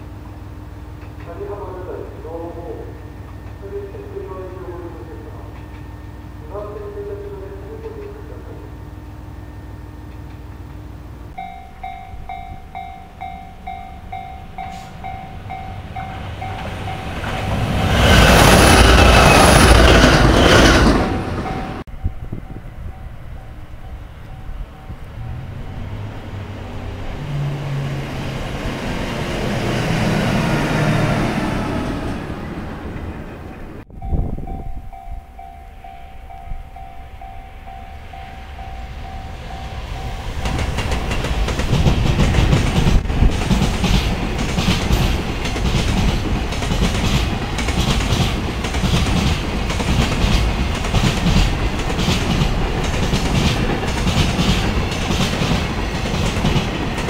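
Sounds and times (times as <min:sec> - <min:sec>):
train running past: 0:00.0 - 0:57.0
freight train wagons clacking: 0:00.9 - 0:08.4, 0:10.0 - 0:22.0, 0:32.4 - 0:57.0.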